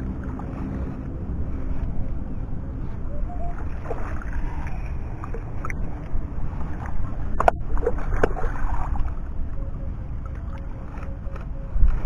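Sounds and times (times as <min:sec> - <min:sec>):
steady low rumble: 0:00.0 - 0:12.0
water sloshing and splashing: 0:00.0 - 0:12.0.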